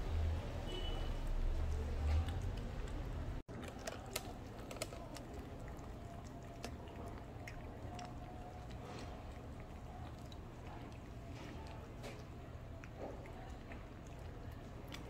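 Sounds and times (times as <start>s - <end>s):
cats licking and chewing: 1.6s - 15.0s.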